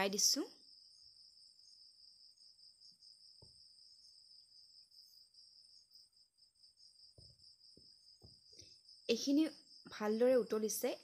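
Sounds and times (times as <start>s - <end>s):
faint high-pitched pulsing chirr: 0.0s - 11.0s.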